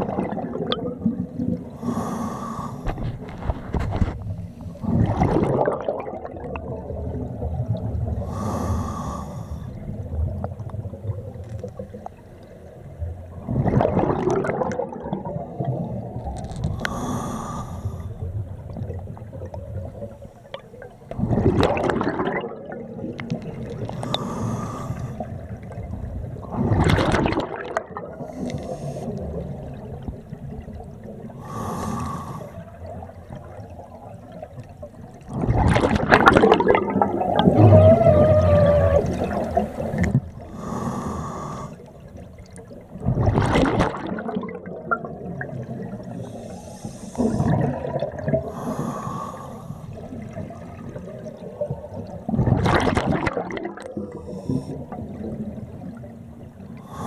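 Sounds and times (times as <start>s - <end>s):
exhaust bubbles gurgling: 0.0s - 8.9s, 13.0s - 17.1s, 18.2s - 41.1s, 41.8s - 46.5s, 47.1s - 49.0s, 49.9s - 57.0s
regulator inhalation hiss: 40.6s - 41.8s, 46.3s - 47.4s.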